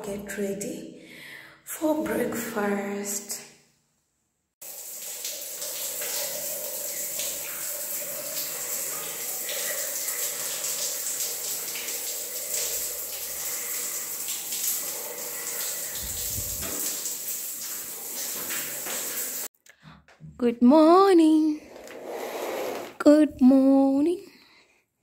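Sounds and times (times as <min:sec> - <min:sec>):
shower water spraying: 0:04.6 - 0:19.5.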